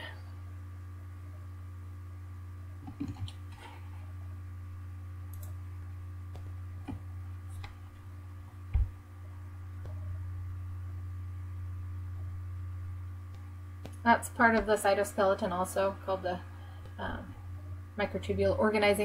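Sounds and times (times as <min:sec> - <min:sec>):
low electrical hum: 0:00.0 - 0:19.0.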